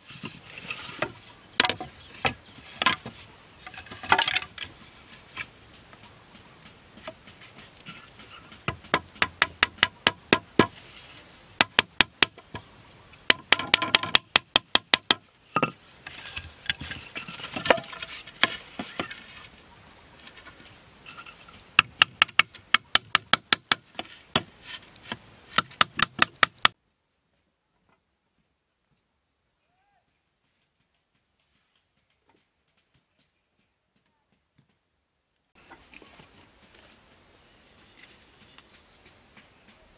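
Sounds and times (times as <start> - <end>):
wooden mallet knocking: 13.3 - 15.8.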